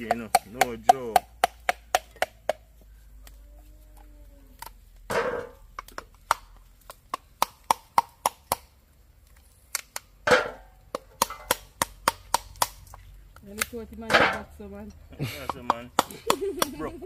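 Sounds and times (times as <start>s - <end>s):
machete striking coconut shell: 0.0s - 2.6s, 7.1s - 8.7s, 10.2s - 12.8s.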